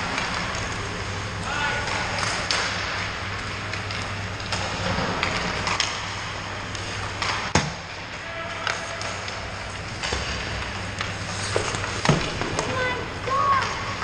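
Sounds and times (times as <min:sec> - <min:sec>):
steady low hum: 0:00.0 - 0:14.0
sticks and pucks clacking: 0:00.0 - 0:14.0
skates scraping on ice: 0:08.2 - 0:14.0.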